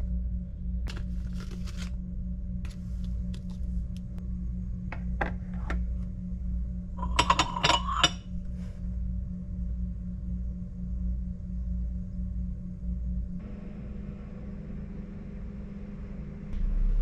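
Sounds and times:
steady low hum: 0.0 - 17.0
porcelain teacups clinking: 7.0 - 8.2.

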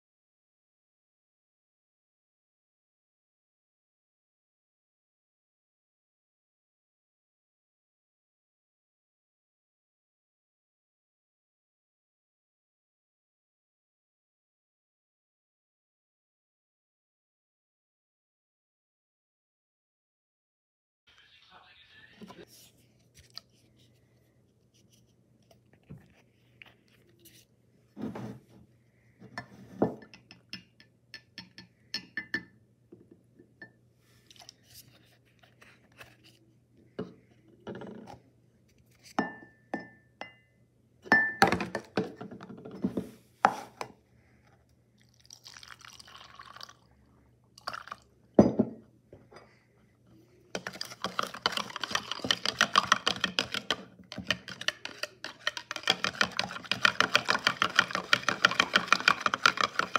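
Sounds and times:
metal spoon stirring in glass: 50.6 - 59.9.

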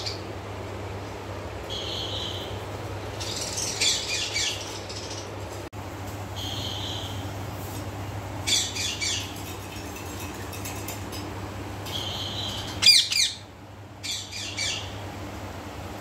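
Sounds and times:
low steady hum: 0.0 - 16.0
parakeet chicks squawking: 1.7 - 2.6, 3.2 - 5.4, 8.4 - 10.9, 11.9 - 15.0.

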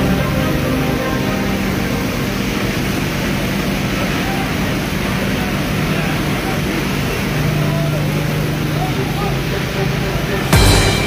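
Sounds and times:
crowd voices: 0.0 - 11.0
fire hoses spraying water: 2.6 - 11.0.

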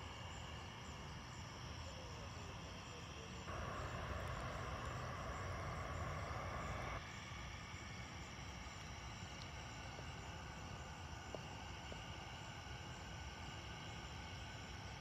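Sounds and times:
distant low rumble: 3.5 - 7.0
hiss: 3.5 - 7.2.

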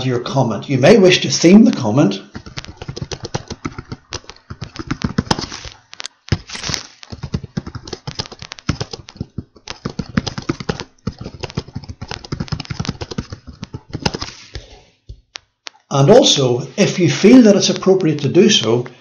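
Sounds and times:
fast typing on keyboard: 2.3 - 14.4.

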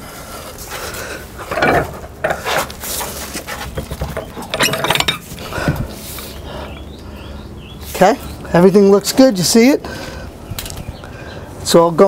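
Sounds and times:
man breathing heavily: 0.0 - 1.5, 5.3 - 7.6, 9.8 - 11.6
metal tool clinking: 4.2 - 5.4.

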